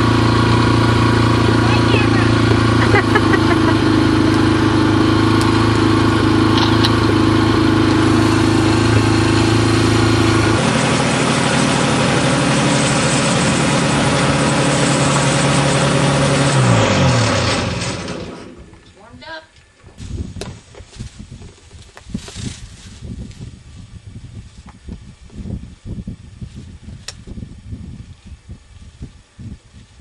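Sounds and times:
dirt bike engine idling: 0.0 - 18.9
ultralight trike engine running: 0.0 - 18.9.

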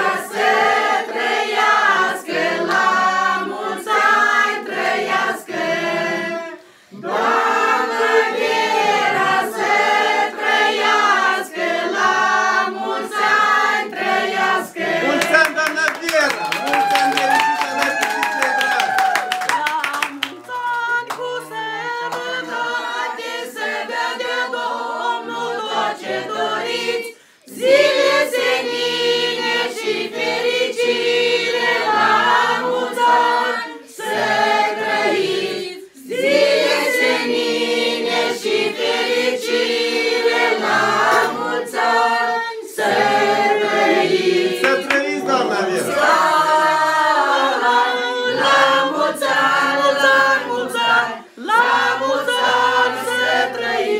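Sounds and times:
group of voices singing: 0.0 - 15.6, 17.9 - 53.9
elderly woman singing: 19.4 - 22.8.

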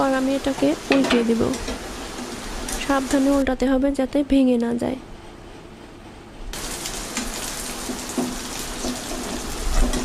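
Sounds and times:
eggs sizzling in a frying pan: 0.0 - 3.4, 6.5 - 10.0
spatula working in a pan: 6.6 - 10.0.

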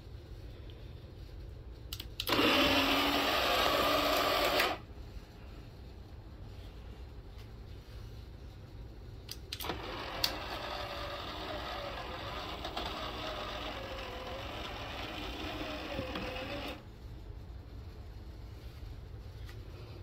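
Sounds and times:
small gear motor whirring: 2.2 - 4.8, 9.6 - 16.8.

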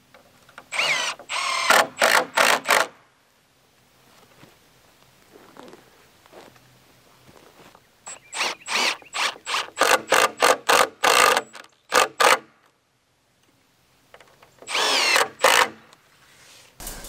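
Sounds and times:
impact driver driving screw into wood: 0.7 - 2.9, 8.4 - 12.4, 14.7 - 15.8.

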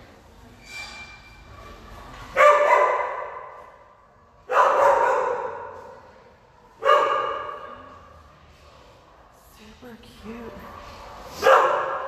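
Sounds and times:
dog barking with echo: 2.4 - 3.5, 4.5 - 5.8, 6.8 - 7.7, 11.4 - 12.0.

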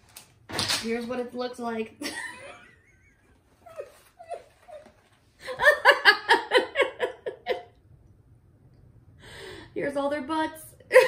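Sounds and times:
woman laughing: 2.0 - 7.8.

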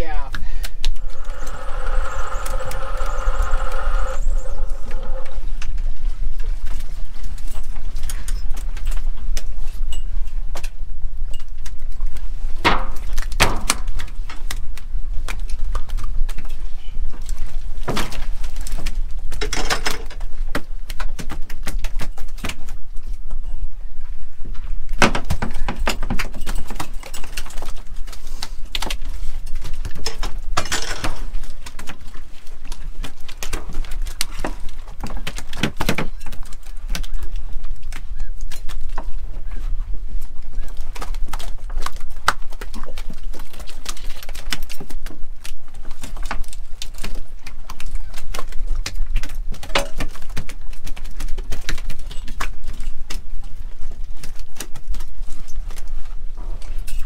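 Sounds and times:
boat low rumble: 0.0 - 7.4
knocks and clatters of gear: 0.6 - 23.5, 24.6 - 39.8, 40.5 - 57.0.

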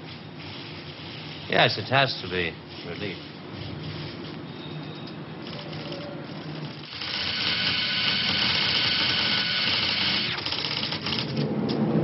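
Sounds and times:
high mechanical whirr: 5.4 - 11.8.

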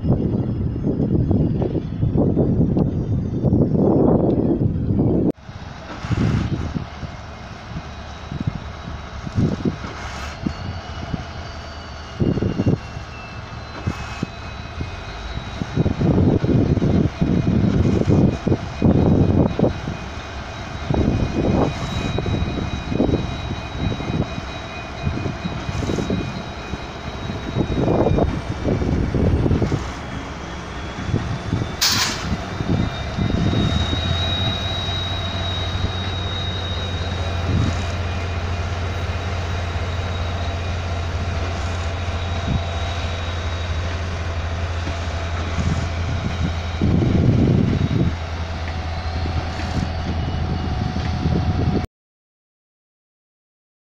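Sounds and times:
wind buffeting microphone: 0.0 - 51.8
locomotive high whine: 0.0 - 51.9
short sharp hiss: 31.8 - 32.3.

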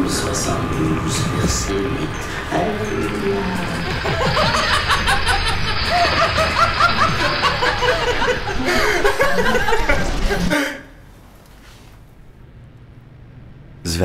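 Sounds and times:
man and woman laughing: 3.5 - 10.9.

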